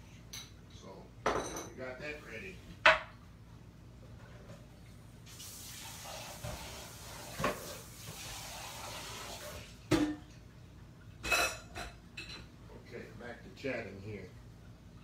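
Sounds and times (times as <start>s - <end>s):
kitchen tap running: 5.2s - 10.5s
dish clattering: 9.9s - 10.3s, 11.2s - 12.5s.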